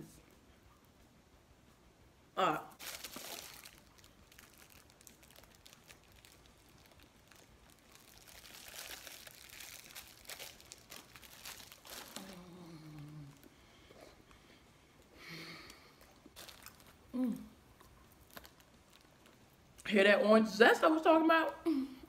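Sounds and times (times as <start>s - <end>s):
plastic wrapper crinkling: 2.8s - 13.5s, 16.3s - 17.1s, 17.8s - 19.7s
person humming: 12.1s - 13.4s, 17.1s - 17.5s.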